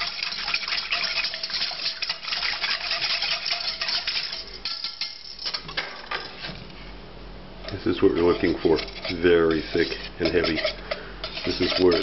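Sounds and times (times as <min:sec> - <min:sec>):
wire whisk clinking in a saucepan: 0:00.0 - 0:05.6, 0:08.2 - 0:12.0.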